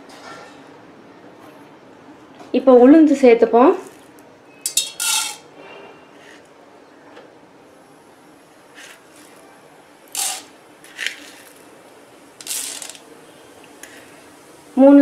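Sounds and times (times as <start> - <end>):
lentils rattling on metal: 4.7 - 5.4, 10.1 - 11.6, 12.4 - 13.1.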